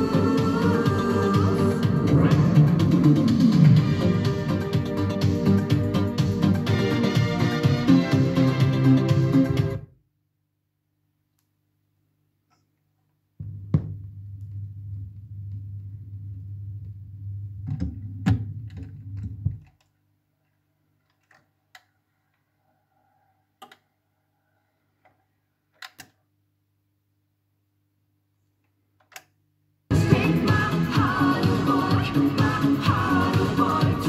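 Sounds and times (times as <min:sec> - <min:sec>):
turntable hum and rumble: 0:13.4 - 0:19.7.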